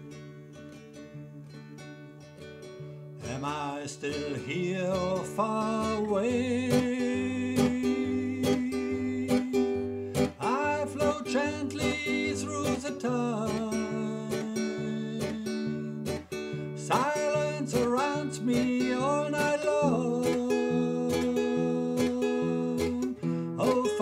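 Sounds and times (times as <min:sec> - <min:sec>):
acoustic guitar music: 0:00.0 - 0:24.0.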